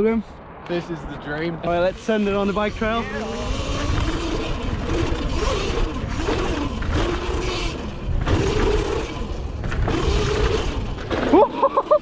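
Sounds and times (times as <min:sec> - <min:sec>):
tyres on dirt and gravel: 0:00.0 - 0:12.0
electric motorbike motor whining: 0:01.8 - 0:12.0
wind noise on helmet: 0:02.8 - 0:07.0.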